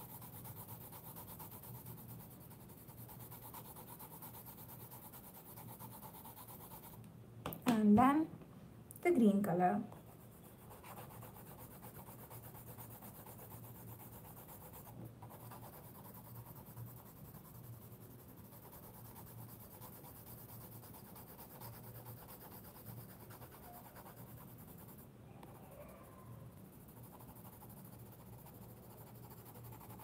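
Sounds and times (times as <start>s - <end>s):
colored pencil scratching on paper: 0.0s - 7.0s, 9.8s - 30.0s.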